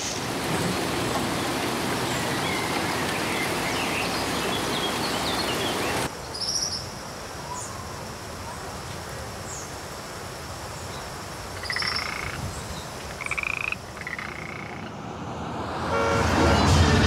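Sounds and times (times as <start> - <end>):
forest background noise: 0.0 - 15.6
frog pulsed calls: 11.6 - 12.4, 13.1 - 14.9
music: 16.2 - 17.0.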